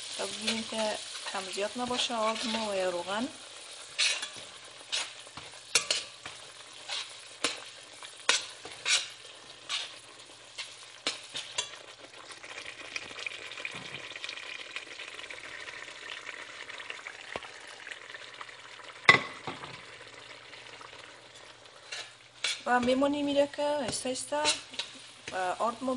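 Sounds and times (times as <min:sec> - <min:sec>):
food sizzling in hot oil: 0:00.0 - 0:25.9
metal spoon scraping a pot: 0:03.9 - 0:11.8, 0:21.8 - 0:23.0, 0:23.9 - 0:25.0.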